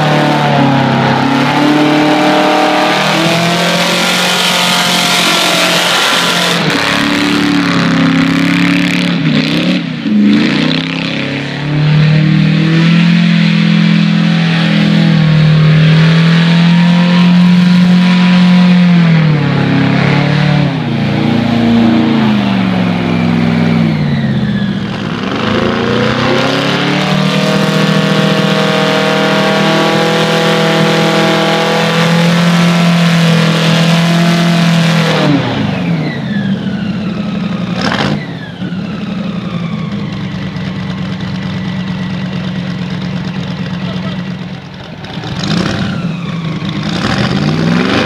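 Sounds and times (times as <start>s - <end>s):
high whine: 0.0s - 37.6s
airboat engine revving: 0.0s - 48.0s.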